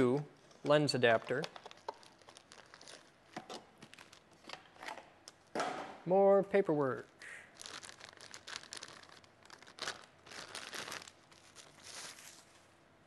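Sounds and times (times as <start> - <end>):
plastic bag and bubble wrap crinkling: 0.7 - 4.5, 7.5 - 12.8.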